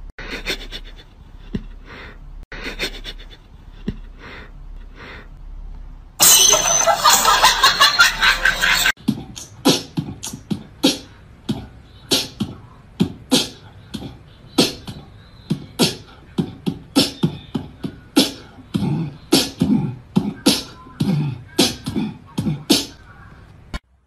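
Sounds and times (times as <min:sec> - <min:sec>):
beatbox beat: 0:09.0 - 0:23.0.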